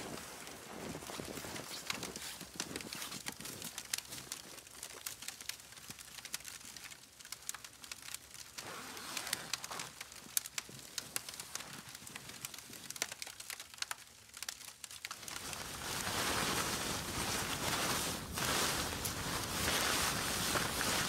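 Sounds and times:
tent fabric rustling: 0.0 - 4.6, 8.5 - 13.1, 15.1 - 21.0
footsteps crunching snow: 0.0 - 5.1, 15.2 - 21.0.

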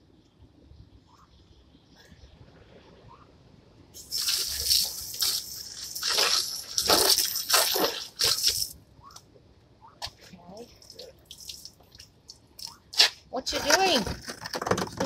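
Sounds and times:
hose spraying on plastic chairs: 4.0 - 8.7.

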